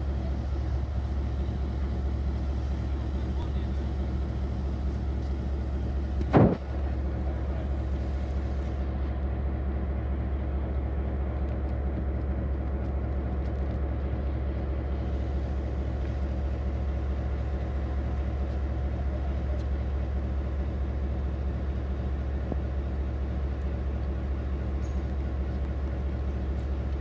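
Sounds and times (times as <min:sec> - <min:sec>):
diesel locomotive engine idling: 0:00.0 - 0:27.0
brief loud burst: 0:06.2 - 0:06.7.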